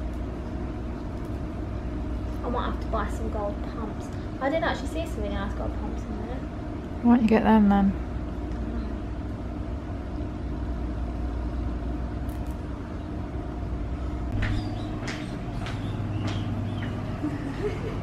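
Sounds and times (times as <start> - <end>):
steady low hum: 0.0 - 18.0
high heels clicking on tile floor: 14.4 - 17.0.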